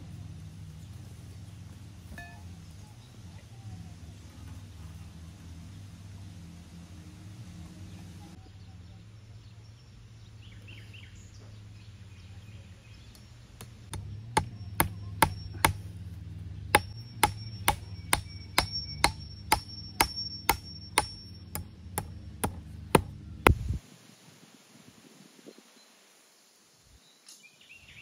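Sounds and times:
hammer striking with metallic ring: 0:02.2 - 0:02.5, 0:13.9 - 0:16.0, 0:16.7 - 0:23.2.

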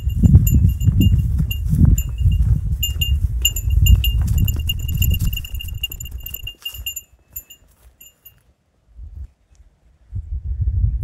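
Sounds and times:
wind rumbling on microphone: 0:00.0 - 0:07.6, 0:08.9 - 0:11.0
small metal bell jingling: 0:00.0 - 0:08.4.

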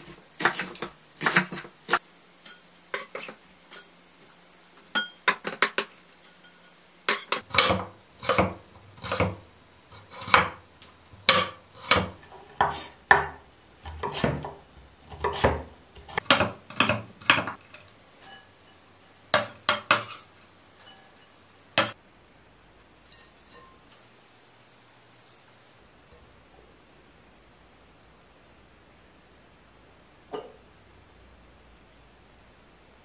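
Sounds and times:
knife chopping on wooden board: 0:00.4 - 0:02.0, 0:07.1 - 0:09.4, 0:10.0 - 0:10.6, 0:11.2 - 0:17.6, 0:19.3 - 0:20.2.

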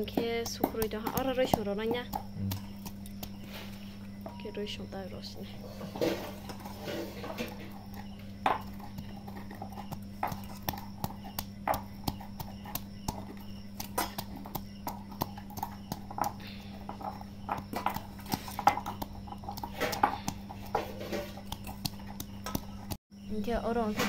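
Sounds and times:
pestle pounding in metal mortar: 0:00.0 - 0:03.5, 0:06.3 - 0:23.0
steady low hum: 0:00.0 - 0:24.0.

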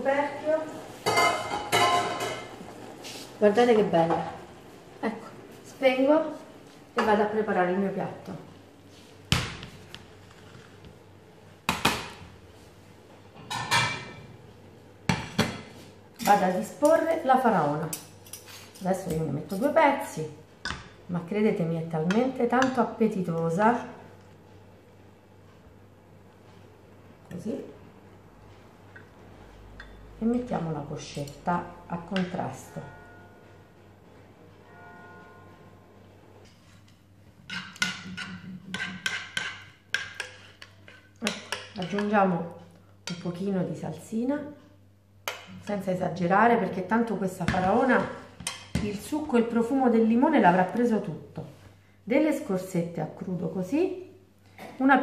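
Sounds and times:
cutlery clinking on frying pan: 0:01.0 - 0:02.5, 0:37.5 - 0:42.1
faint background music: 0:29.5 - 0:36.8.

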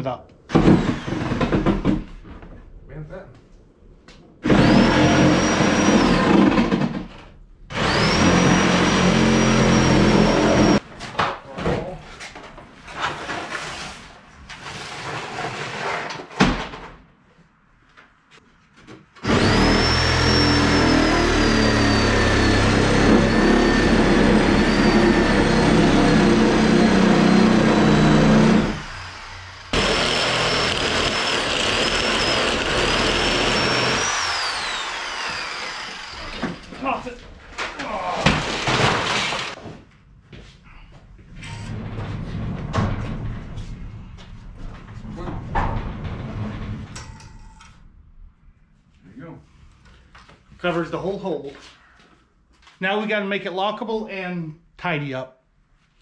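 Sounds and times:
power saw cutting wood: 0:00.5 - 0:01.8, 0:04.4 - 0:06.9, 0:07.7 - 0:10.8, 0:19.2 - 0:37.0, 0:38.3 - 0:39.6.

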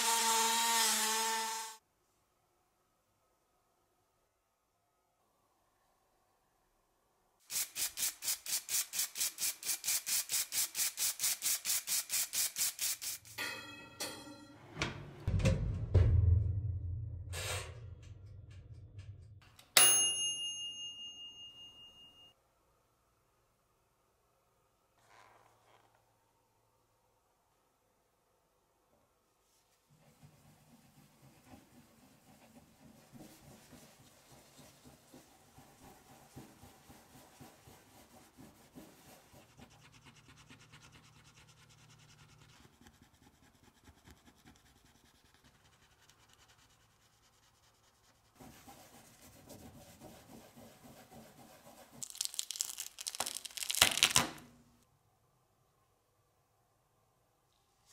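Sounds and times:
bright bell ding: 0:19.7 - 0:22.3.

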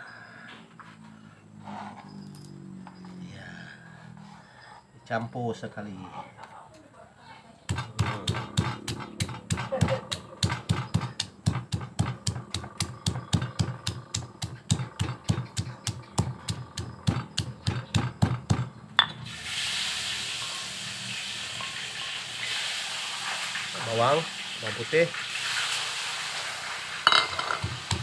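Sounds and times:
stone pestle pounding in mortar: 0:07.7 - 0:19.1, 0:27.1 - 0:28.0
steady hiss: 0:19.3 - 0:28.0.

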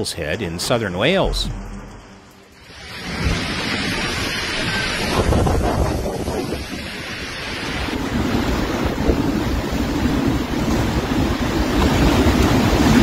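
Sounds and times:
driving rain: 0:01.2 - 0:13.0
storm wind buffeting microphone: 0:02.7 - 0:13.0.

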